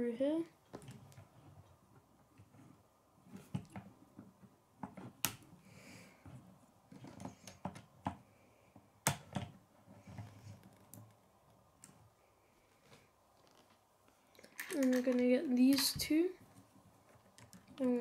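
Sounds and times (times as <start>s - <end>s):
plastic toy pieces clicking: 14.3s - 16.0s.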